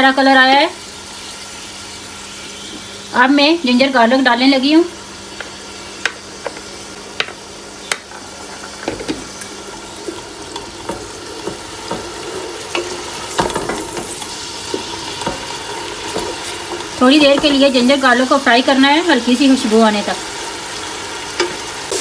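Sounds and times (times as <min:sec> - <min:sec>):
paste sizzling in oil: 0:00.8 - 0:22.0
spoon stirring and scraping pot: 0:08.0 - 0:17.8.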